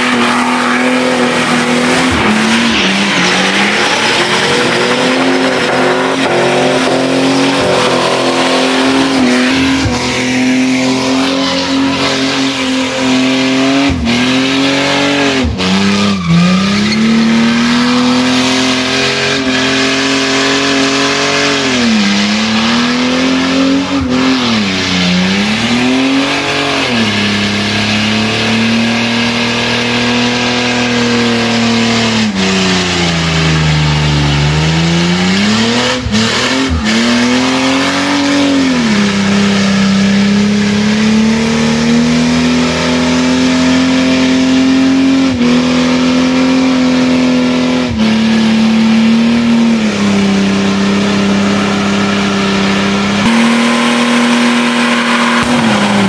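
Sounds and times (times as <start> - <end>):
car engine revving high: 0.0 - 56.0.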